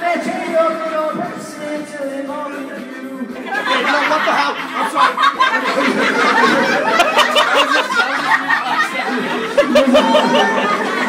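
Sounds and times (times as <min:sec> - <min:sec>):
voices chattering: 0:02.8 - 0:11.0
young people laughing: 0:03.4 - 0:11.0.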